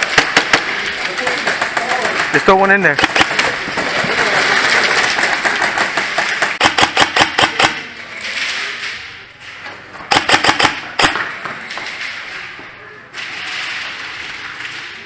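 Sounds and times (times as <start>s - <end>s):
airsoft rifle shots: 0.0s - 3.7s, 4.9s - 7.9s, 10.1s - 11.4s.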